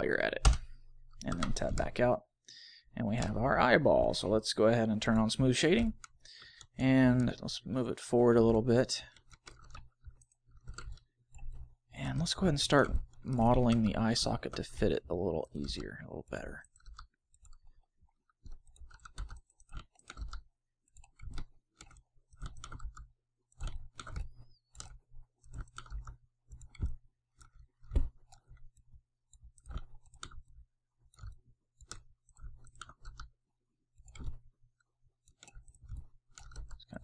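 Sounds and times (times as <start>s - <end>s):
mouse and keyboard clicking: 0.4s - 2.0s, 8.4s - 11.7s, 12.4s - 17.8s, 18.4s - 33.3s, 34.0s - 34.5s, 35.2s - 37.0s.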